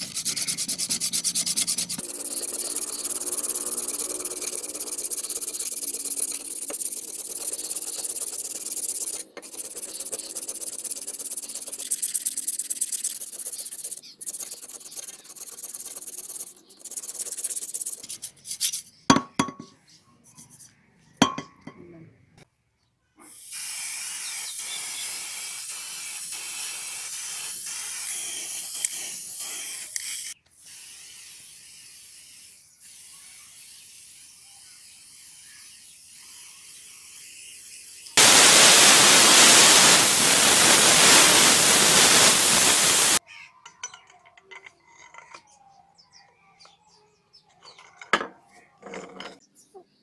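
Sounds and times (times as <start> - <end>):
spray paint can hissing: 0.0 - 18.2, 23.3 - 43.2.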